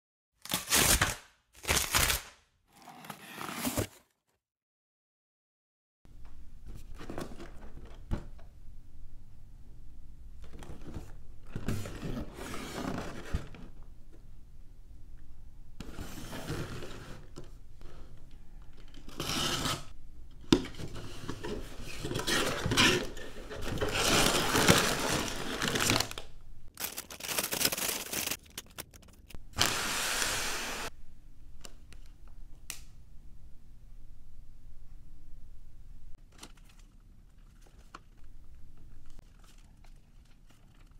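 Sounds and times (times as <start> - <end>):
cardboard box cut open: 0.4 - 4.2
plastic bags rustling: 21.5 - 29.8.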